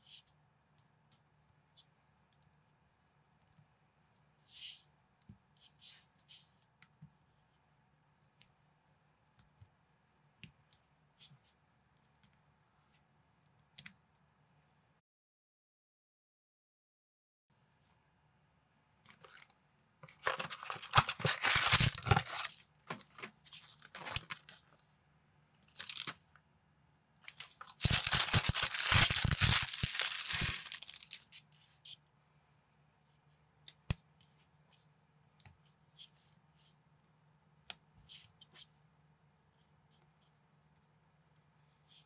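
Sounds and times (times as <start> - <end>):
packaging tearing and crinkling: 20.2 - 24.6, 25.7 - 26.2, 27.3 - 31.3
small plastic pieces clicking: 27.8 - 31.3.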